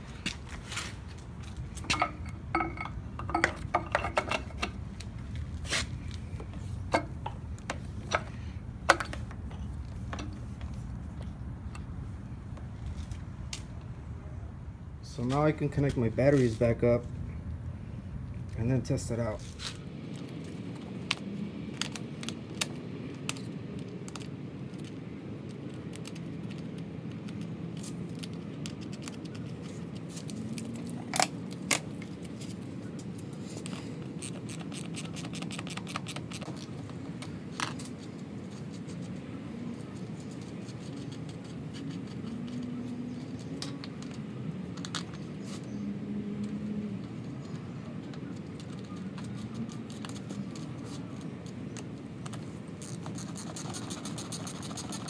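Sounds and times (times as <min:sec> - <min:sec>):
steady low hum: 0:00.0 - 0:48.6
metallic clicks and scrapes: 0:21.8 - 0:45.8, 0:48.3 - 0:55.0.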